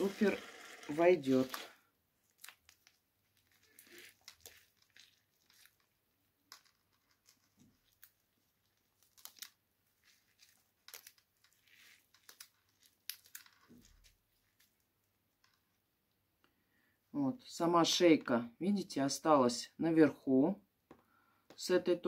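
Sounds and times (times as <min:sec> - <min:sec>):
moss crackling and rustling: 0:00.0 - 0:14.8
plastic cup crinkling: 0:00.0 - 0:14.8.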